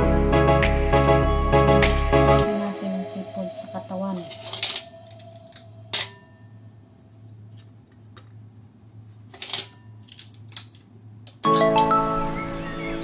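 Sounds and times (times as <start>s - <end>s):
music: 0.0s - 6.5s, 11.4s - 13.0s.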